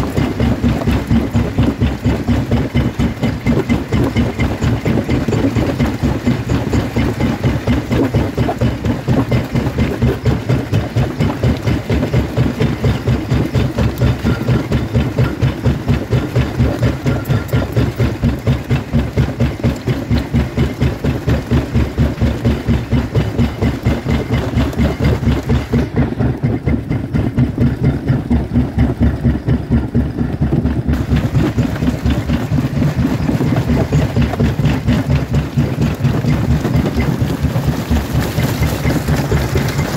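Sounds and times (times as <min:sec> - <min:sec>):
jaw crusher crushing stone: 0:30.9 - 0:39.9.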